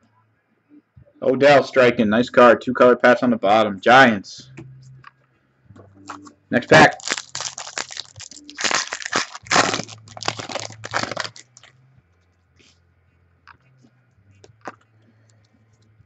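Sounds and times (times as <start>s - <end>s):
foil wrapper tearing and crinkling: 6.8s - 11.7s.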